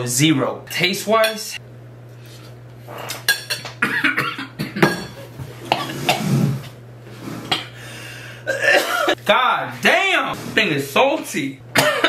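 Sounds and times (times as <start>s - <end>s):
man coughing and spluttering: 3.8s - 6.4s, 8.5s - 9.2s, 11.8s - 12.0s.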